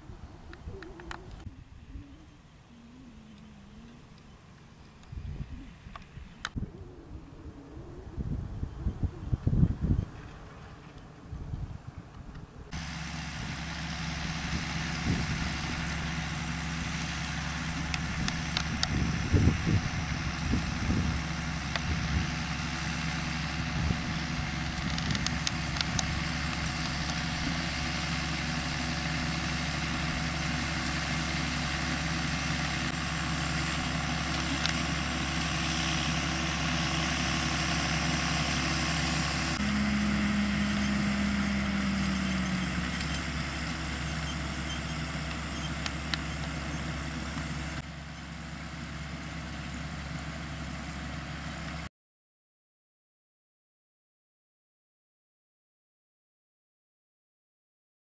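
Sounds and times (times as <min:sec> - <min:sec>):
tractor diesel engine under load: 0:12.7 - 0:51.9
higher falling note: 0:39.6 - 0:43.0.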